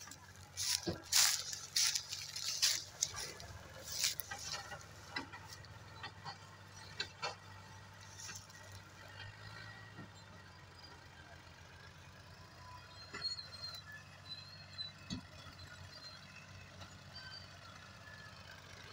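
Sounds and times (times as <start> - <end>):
crackling and crunching of dry cane: 0.0 - 9.2
tractor engines under load: 0.0 - 18.9.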